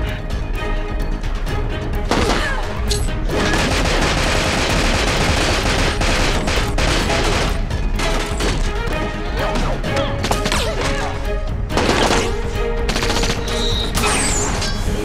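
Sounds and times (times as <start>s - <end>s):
dramatic music: 0.0s - 15.0s
rapid automatic rifle fire: 3.4s - 7.7s.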